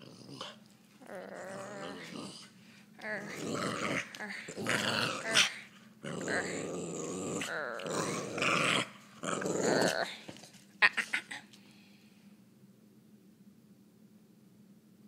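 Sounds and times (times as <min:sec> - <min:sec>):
small dog growling: 0:00.0 - 0:11.5.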